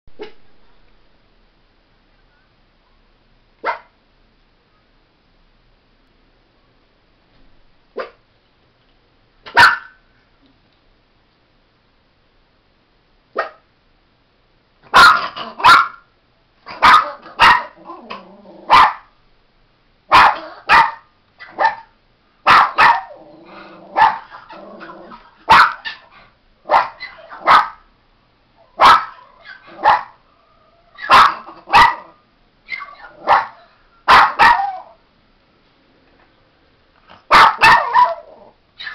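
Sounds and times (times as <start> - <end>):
small dog barking: 3.6 - 4.0, 8.0 - 8.2, 9.5 - 10.0, 13.4 - 13.7, 14.9 - 16.1, 16.7 - 19.2, 20.1 - 27.9, 28.8 - 30.2, 31.0 - 35.0, 37.2 - 38.9.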